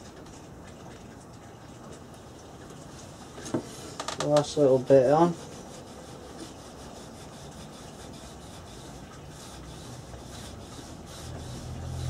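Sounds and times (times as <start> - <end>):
cloth rubbing on wood: 2.9 - 12.0.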